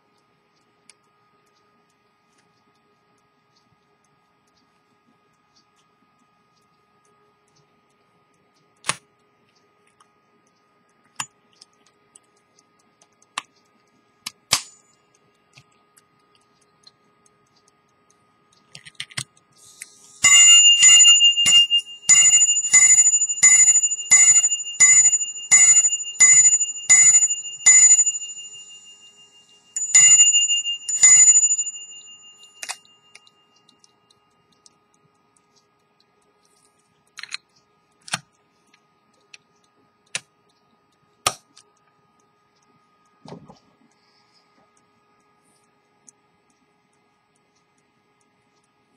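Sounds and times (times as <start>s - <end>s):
pocket watch bell striking: 20.2s - 33.2s.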